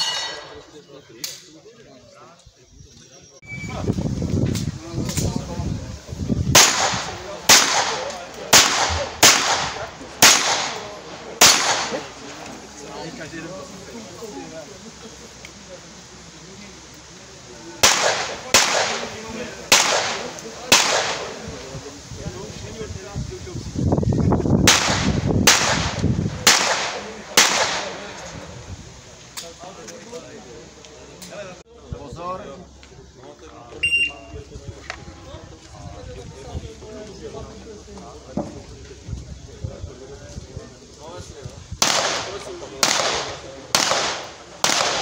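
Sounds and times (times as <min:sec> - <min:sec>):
pistol shots with echo: 0:06.5 - 0:12.1, 0:17.8 - 0:21.4, 0:24.7 - 0:28.1, 0:41.8 - 0:45.0.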